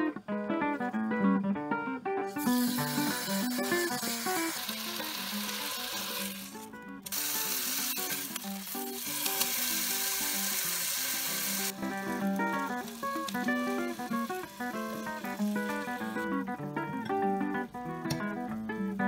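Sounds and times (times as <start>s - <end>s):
steak sizzling in frying pan: 2.3s - 16.3s.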